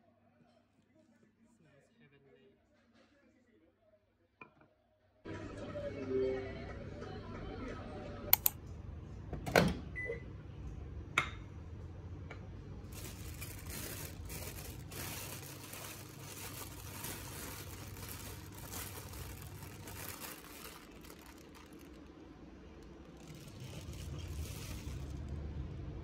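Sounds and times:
microwave beep: 9.9s - 10.3s
low hum: 11.6s - 26.0s
plastic bag crinkling: 12.8s - 25.5s.

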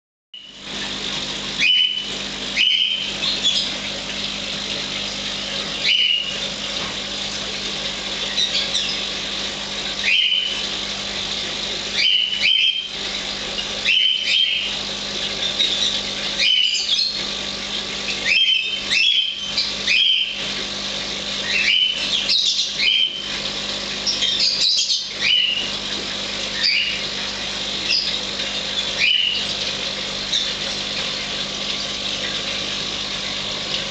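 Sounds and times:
small bird chirping: 1.6s - 3.7s, 5.8s - 6.4s, 10.0s - 10.6s, 27.8s - 28.2s.

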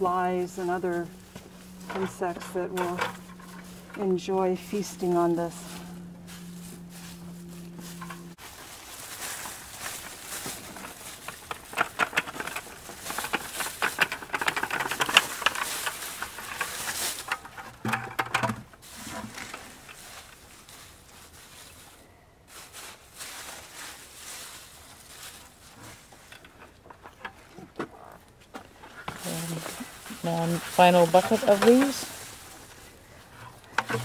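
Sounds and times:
dry leaves crackling and rustling: 0.0s - 17.9s, 18.7s - 26.8s, 28.8s - 34.0s.

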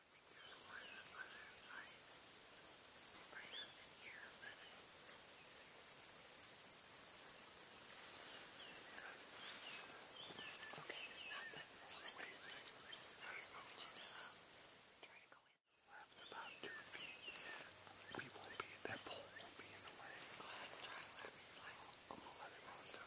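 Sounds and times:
high-pitched insect drone: 7.4s - 23.0s
bird chirps: 8.3s - 14.3s, 15.0s - 23.0s.

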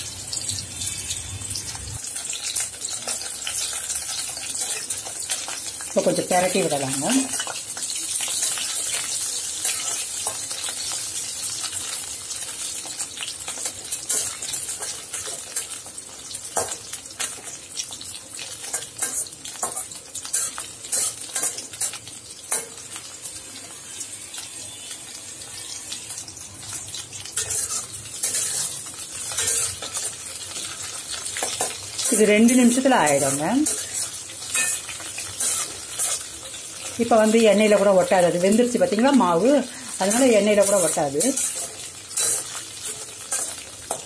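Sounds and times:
prawns sizzling in hot oil: 0.0s - 44.0s
spatula scraping and tapping pan: 12.8s - 17.6s, 18.6s - 23.1s, 27.2s - 37.0s, 40.0s - 44.0s.

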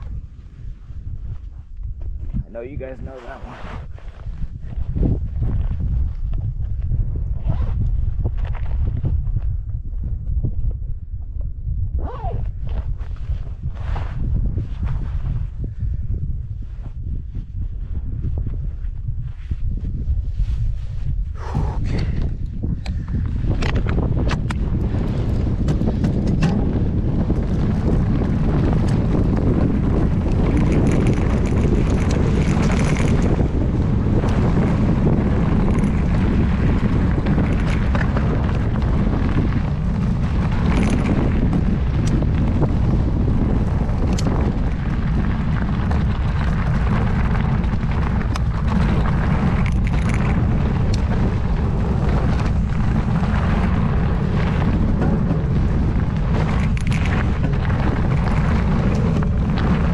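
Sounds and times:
wind buffeting microphone: 0.0s - 59.9s
bike clicks and knocks: 22.1s - 59.9s.

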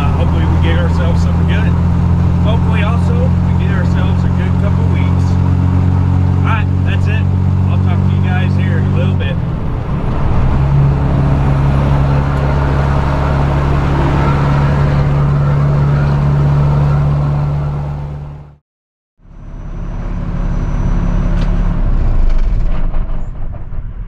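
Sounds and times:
low steady rumble: 0.0s - 18.6s
truck engine and tyre hum: 0.0s - 18.6s, 19.2s - 24.0s.

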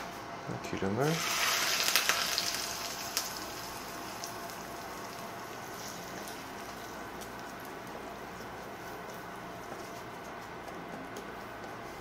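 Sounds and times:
hot oil sizzling and crackling: 1.0s - 9.2s.

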